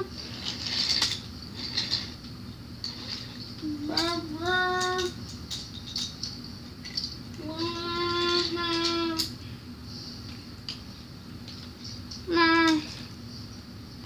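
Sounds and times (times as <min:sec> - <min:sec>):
child singing a held note: 0:12.3 - 0:13.0.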